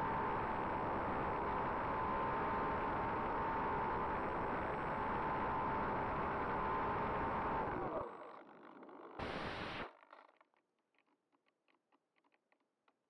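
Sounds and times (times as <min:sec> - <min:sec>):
electric motor whine: 0:00.0 - 0:08.0.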